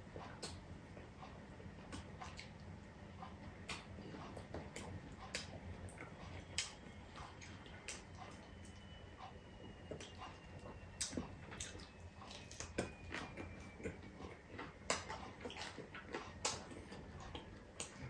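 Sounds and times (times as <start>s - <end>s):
chewing and lip smacks: 0.2s - 18.0s.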